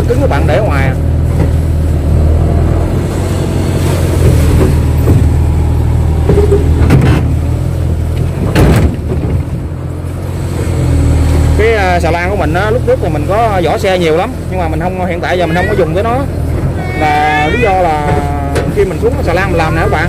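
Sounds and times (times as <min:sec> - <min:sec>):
excavator diesel engine running: 0:00.0 - 0:20.0
knocks and clanks: 0:04.2 - 0:05.5, 0:06.2 - 0:07.4, 0:08.1 - 0:09.6, 0:18.0 - 0:18.9.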